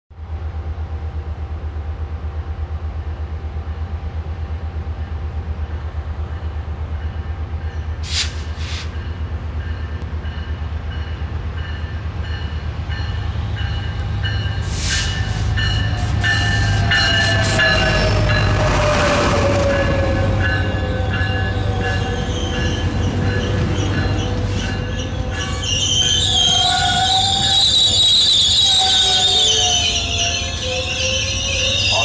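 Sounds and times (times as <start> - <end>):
train rumbling: 0.2 - 32.0
short hissing bursts: 8.0 - 9.0
falling horn tones: 16.5 - 20.9.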